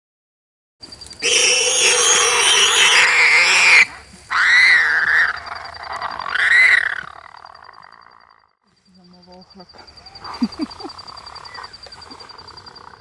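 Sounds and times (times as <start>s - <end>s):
warthog squealing in distress: 1.2s - 8.1s.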